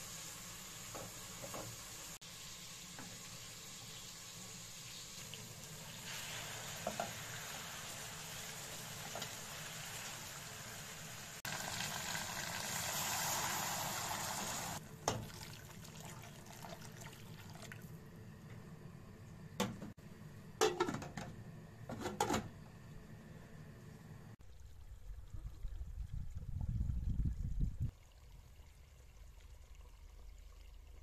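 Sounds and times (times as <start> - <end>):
chicken sizzling in a pot: 0.0 - 18.1
lid knocking against pot: 20.6 - 21.3.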